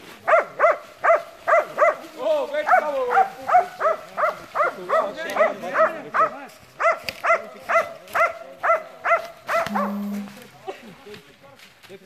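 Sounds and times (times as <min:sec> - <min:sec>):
dog baying barks: 0:00.2 - 0:02.0, 0:02.7 - 0:10.4.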